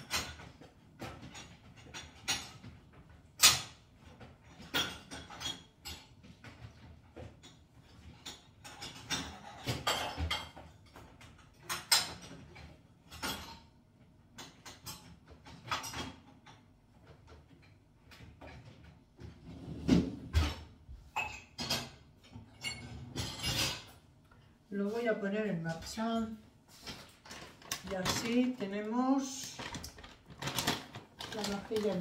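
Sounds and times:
dishes and cutlery clinking: 0.0 - 13.7, 19.8 - 24.0, 25.8 - 32.0
dishwasher rack sliding: 18.5 - 24.0.

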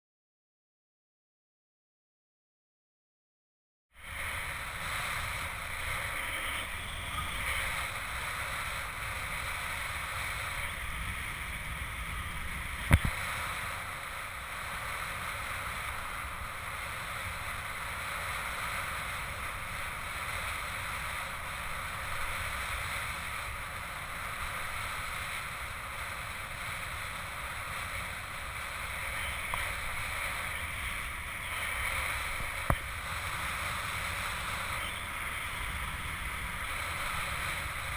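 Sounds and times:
wind rumble on microphone: 4.0 - 37.9.

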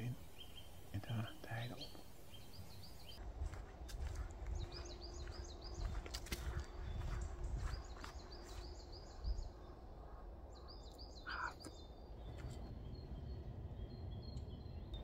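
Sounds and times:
songbird singing: 0.0 - 15.0
low rumble: 12.2 - 15.0.

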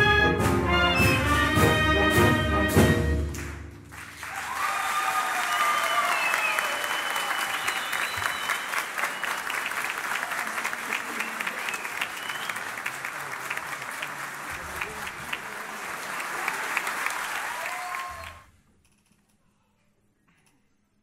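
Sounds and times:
audience applause: 3.3 - 18.5
audience cheering: 3.9 - 18.5.

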